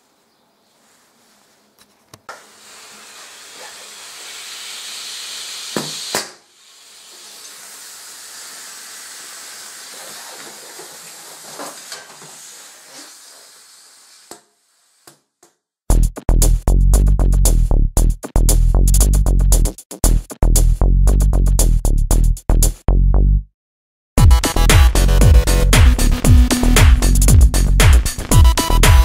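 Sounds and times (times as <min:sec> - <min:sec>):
compressed air hissing: 0:02.3 - 0:15.1.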